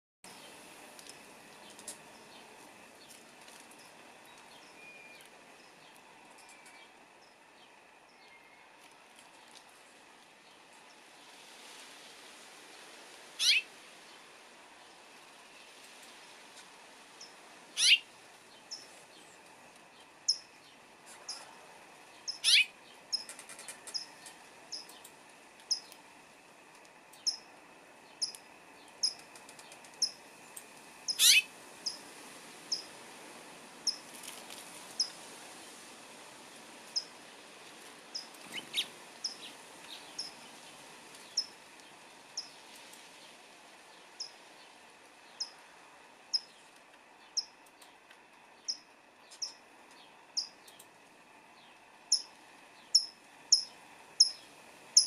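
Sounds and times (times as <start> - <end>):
songbird chirping: 0.3 - 8.9, 13.4 - 13.7, 17.2 - 26.1, 27.1 - 32.0, 38.1 - 45.7, 46.3 - 50.9, 51.5 - 55.0
bird sweeping call: 13.4 - 13.7, 17.8 - 18.0, 22.4 - 22.7, 31.1 - 32.0.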